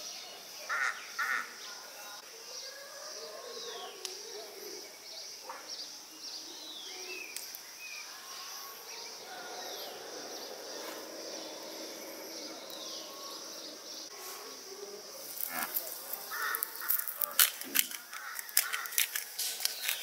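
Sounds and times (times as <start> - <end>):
high-pitched insect drone: 7.2 - 17.2.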